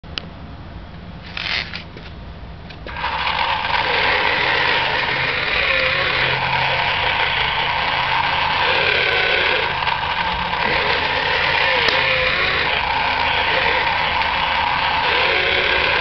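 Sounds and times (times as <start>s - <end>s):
toy electric motors whirring: 1.2s - 2.0s, 2.8s - 16.0s
clicks: 9.7s - 12.8s.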